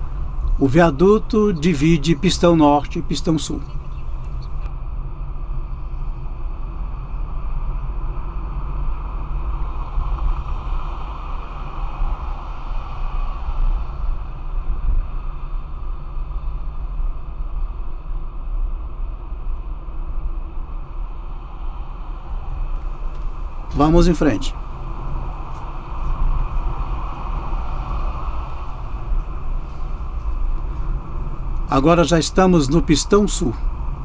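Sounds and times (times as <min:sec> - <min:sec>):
car road noise from inside: 0:00.0 - 0:04.7, 0:21.0 - 0:34.0.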